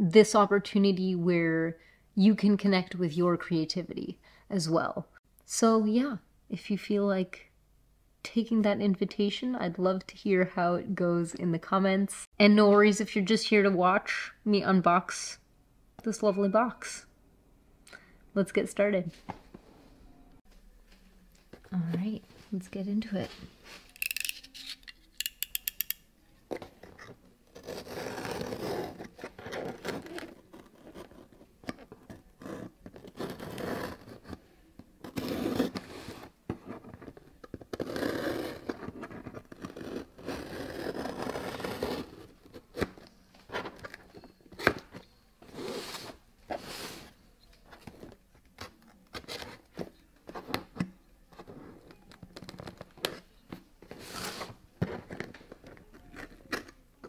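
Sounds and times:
blade scraping cardboard: 0:27.0 - 0:34.4, 0:35.0 - 0:36.3, 0:37.7 - 0:42.3
tape tearing: 0:27.5 - 0:31.8.

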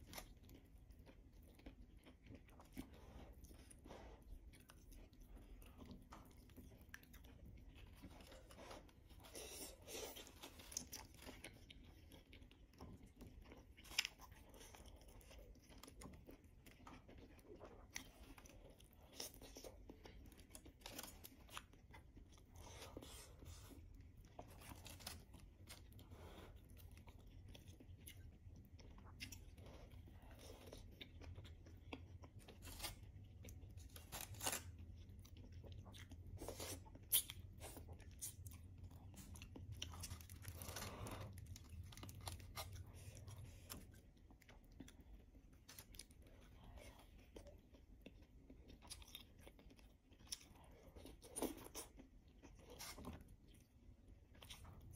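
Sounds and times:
chewing and biting chicken: 0:00.0 - 0:54.9
meat tearing: 0:32.6 - 0:35.0.

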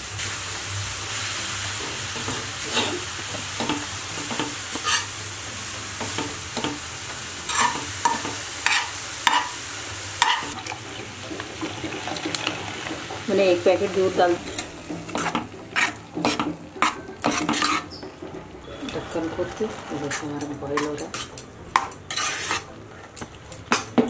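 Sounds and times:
carrots sizzling in a pan: 0:00.0 - 0:24.0
steel spoon scraping pan: 0:03.6 - 0:05.2, 0:07.5 - 0:09.6, 0:10.2 - 0:10.6, 0:14.2 - 0:22.7.

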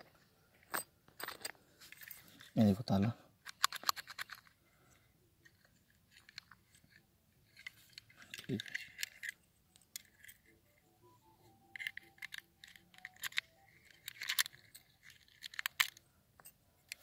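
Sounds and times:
key clicking in padlock: 0:11.6 - 0:17.0.

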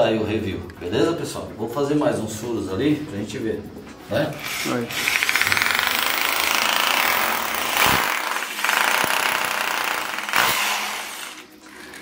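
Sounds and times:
rotary hammer drilling into wall: 0:04.5 - 0:12.0.

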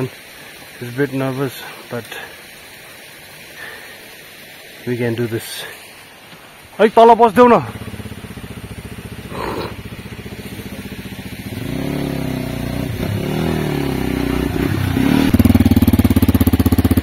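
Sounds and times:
motorcycle engine revving: 0:07.4 - 0:17.0.

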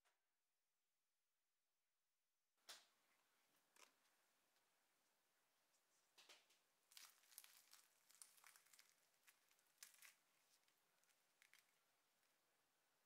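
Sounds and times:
crisp pastry crackling: 0:06.9 - 0:12.4.

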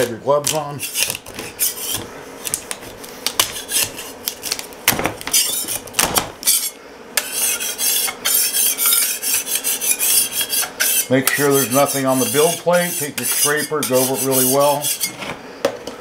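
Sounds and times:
blade rasping on metal plate: 0:00.8 - 0:02.1, 0:03.4 - 0:04.2, 0:05.3 - 0:05.8, 0:06.4 - 0:15.2.

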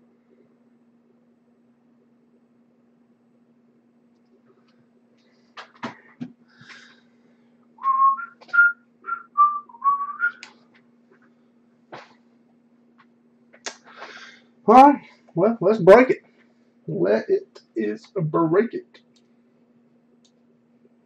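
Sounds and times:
faint steady hum: 0:00.0 - 0:21.0
person whistling a tune: 0:07.8 - 0:10.5.

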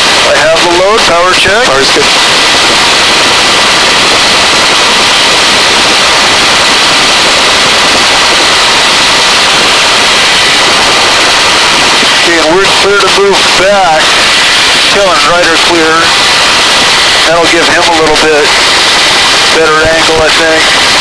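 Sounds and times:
faint high whine: 0:00.0 - 0:21.0
helicopter rotor rushing: 0:00.0 - 0:21.0.

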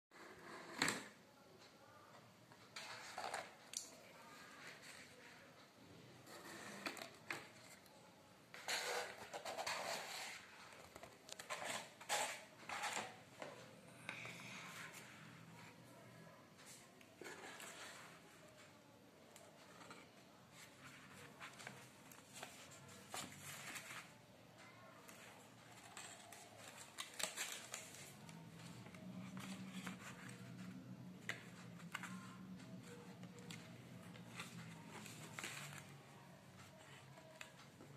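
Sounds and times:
paper rustling and scraping: 0:08.5 - 0:13.2
paper rustling and clicking: 0:19.4 - 0:37.9.

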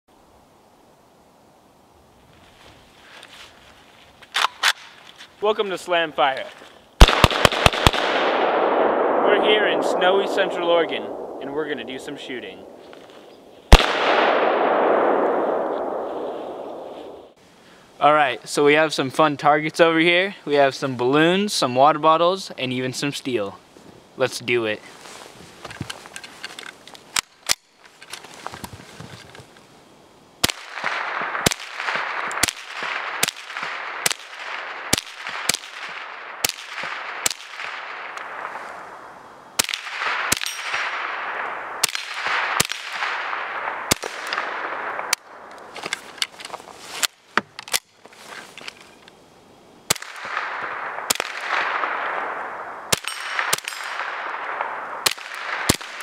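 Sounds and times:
rifle shots: 0:07.0 - 0:12.8, 0:13.7 - 0:17.4, 0:30.4 - 0:45.7, 0:49.9 - 0:56.0.

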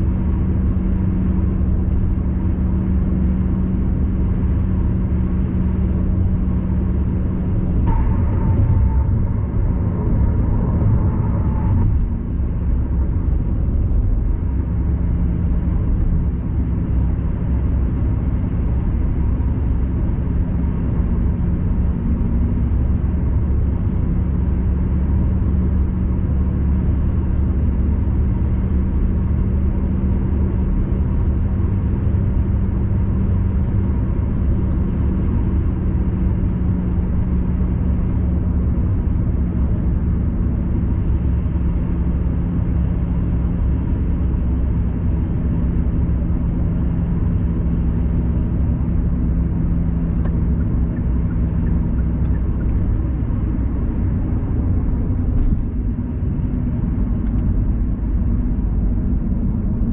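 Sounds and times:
car cruising rumble from cabin: 0:00.0 - 0:59.9
faint steady hum: 0:06.7 - 0:16.2.

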